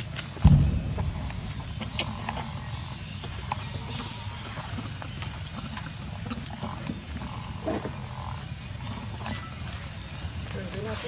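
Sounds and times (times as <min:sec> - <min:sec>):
low rumble: 0:00.4 - 0:04.3.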